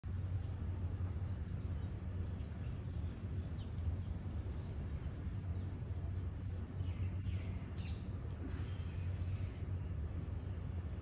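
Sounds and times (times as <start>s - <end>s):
low outdoor rumble: 0.0s - 11.0s
small birds chirping: 0.0s - 11.0s.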